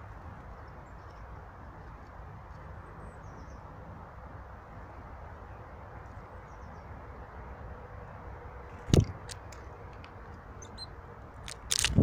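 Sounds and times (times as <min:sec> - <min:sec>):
faint high bird chirps: 0:10.6 - 0:11.0.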